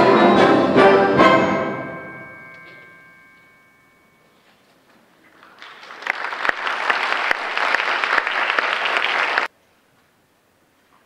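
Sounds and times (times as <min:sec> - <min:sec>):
audience applauding: 0:05.2 - 0:09.5.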